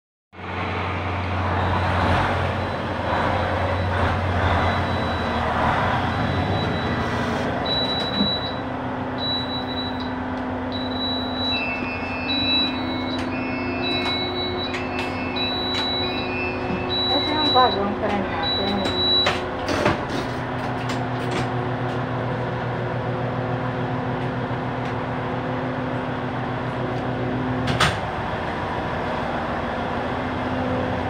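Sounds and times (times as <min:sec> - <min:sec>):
train engine rumbling: 0:00.4 - 0:31.0
repeating electronic beep: 0:10.7 - 0:19.4.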